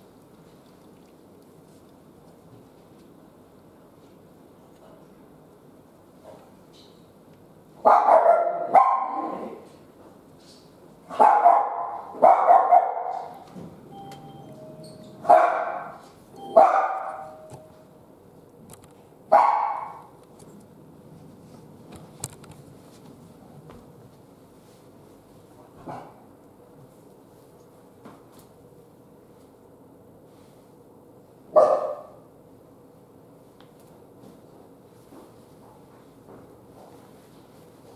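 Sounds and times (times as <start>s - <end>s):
dog barking: 7.8s - 9.5s, 11.1s - 13.4s, 15.2s - 16.0s, 16.6s - 17.4s, 19.3s - 20.0s, 31.5s - 32.2s.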